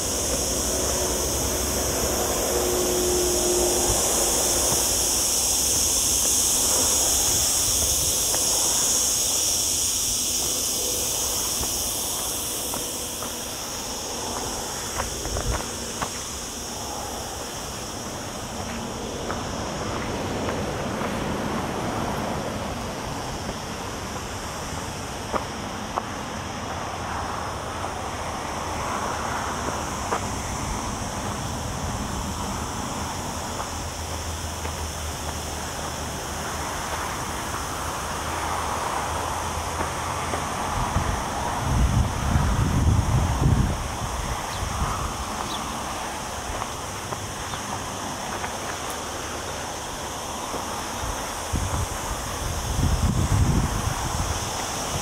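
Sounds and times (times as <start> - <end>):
cicadas buzzing: 0.0 - 55.0
footsteps on gravel: 4.0 - 22.3, 32.8 - 37.7, 44.3 - 52.4.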